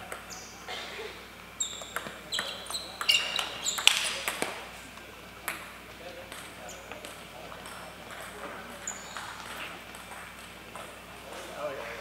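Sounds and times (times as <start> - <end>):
shoes squeaking on floor: 1.6 - 4.2, 6.6 - 10.2
ping pong ball clicking: 1.7 - 4.6.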